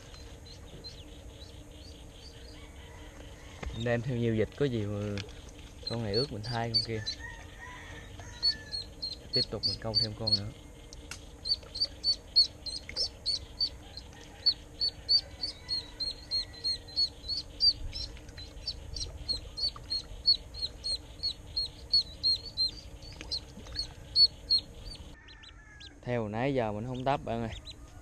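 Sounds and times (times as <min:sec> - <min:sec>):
duckling peeping: 0:00.0 - 0:03.2, 0:05.2 - 0:25.9, 0:26.7 - 0:28.0.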